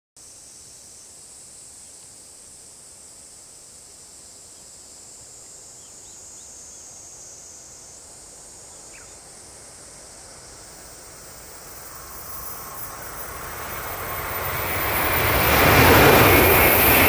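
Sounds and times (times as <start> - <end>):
high-pitched insect chorus: 0.2 - 17.0.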